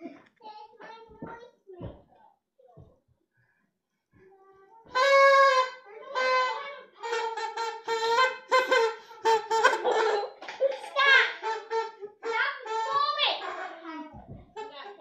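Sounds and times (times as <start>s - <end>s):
party horn blasts: 4.9s - 13.8s.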